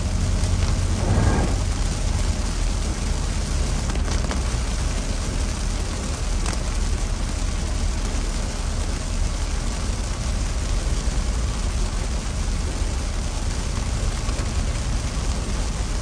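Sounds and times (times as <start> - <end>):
road and wind noise: 0.0 - 7.1
heavy rain on car windshield: 0.0 - 16.0.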